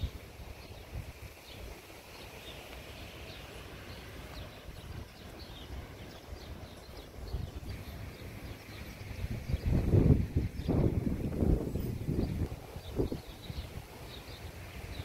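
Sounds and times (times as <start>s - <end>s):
songbirds chirping: 0.0s - 15.0s
wind rumble on microphone: 0.0s - 15.0s.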